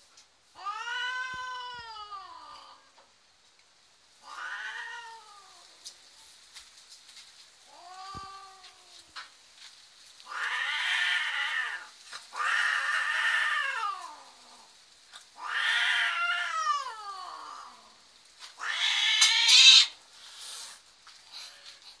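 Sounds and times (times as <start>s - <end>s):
cat yowling: 0.6s - 2.9s, 4.2s - 5.6s, 7.7s - 9.1s, 10.3s - 14.4s, 15.4s - 17.8s, 18.6s - 20.0s.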